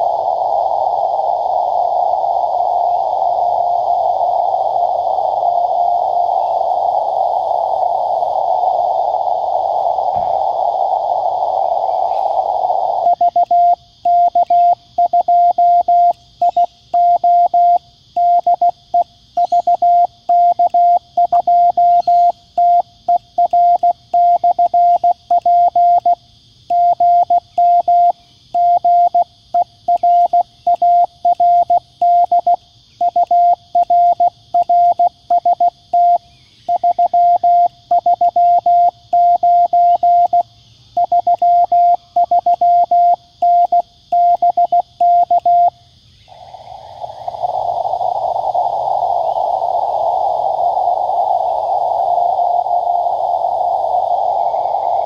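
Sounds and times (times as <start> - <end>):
faint steady hiss: 0.0 - 55.0
morse code tone: 29.9 - 40.4, 41.0 - 45.7.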